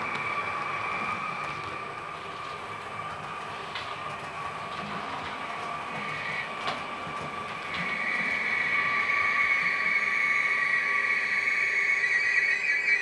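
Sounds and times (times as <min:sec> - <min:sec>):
model train high-pitched whine: 0:00.0 - 0:13.0.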